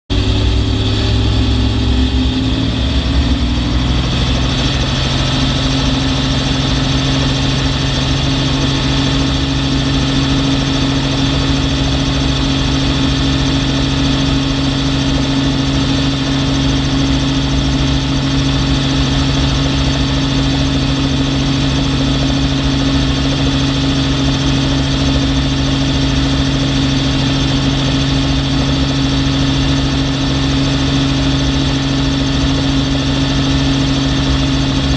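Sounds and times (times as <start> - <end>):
helicopter engine and rotor: 0.1 - 34.9.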